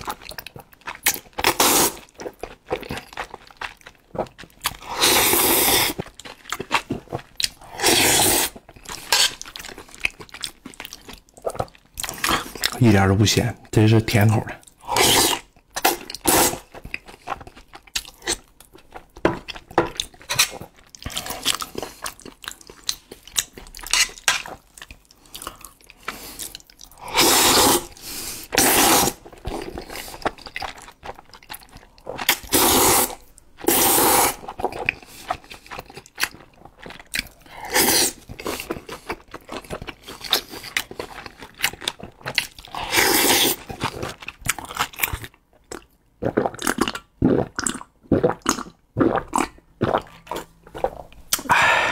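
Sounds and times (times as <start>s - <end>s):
wet chewing and smacking: 0.0s - 12.9s, 14.5s - 51.5s
slurping noodles: 1.4s - 2.2s, 4.7s - 6.0s, 6.9s - 9.4s, 14.8s - 16.8s, 26.0s - 30.4s, 31.6s - 35.8s, 37.6s - 39.2s, 42.4s - 44.2s.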